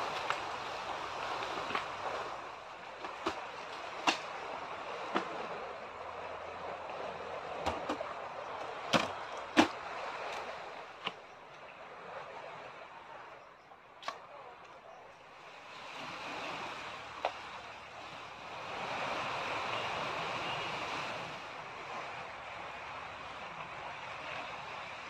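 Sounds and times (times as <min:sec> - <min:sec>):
sea waves breaking: 0:00.0 - 0:25.0
camping gear clicking and knocking: 0:03.0 - 0:04.4, 0:07.6 - 0:11.2.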